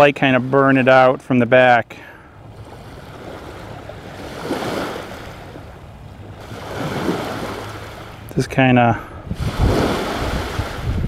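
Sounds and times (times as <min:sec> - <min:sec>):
small waves washing onto beach: 0:00.0 - 0:11.0
wind rumbling on microphone: 0:09.0 - 0:11.0.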